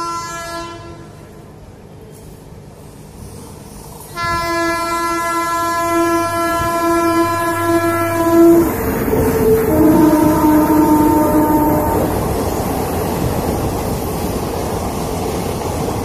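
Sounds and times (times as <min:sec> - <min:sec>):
locomotive horn blast: 0:00.0 - 0:01.3, 0:04.2 - 0:12.3
train passing: 0:00.0 - 0:16.0.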